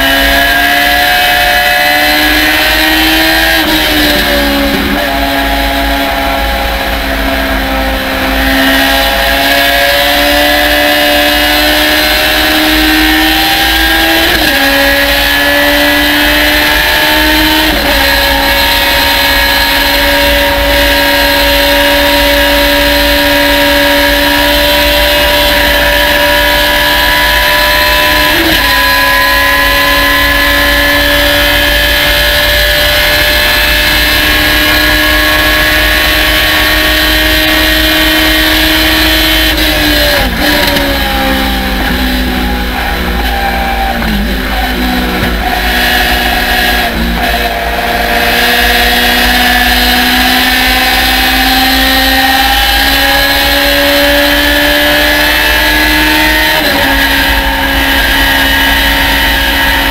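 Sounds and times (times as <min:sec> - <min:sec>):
engine dropping at gear upshifts: 0:00.0 - 0:59.9
race car engine revving: 0:00.0 - 0:59.9.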